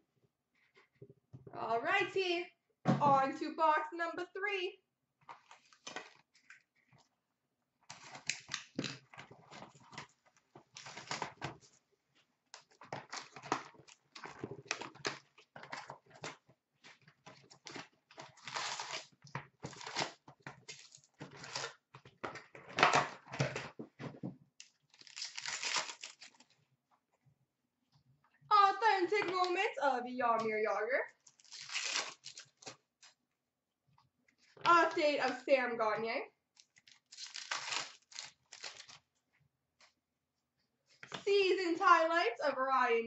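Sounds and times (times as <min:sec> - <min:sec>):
card pack wrappers tearing and crinkling: 0:10.8 - 0:11.4, 0:17.6 - 0:21.8, 0:24.6 - 0:26.6, 0:31.2 - 0:32.8, 0:36.6 - 0:39.0
cards being handled: 0:36.6 - 0:39.0.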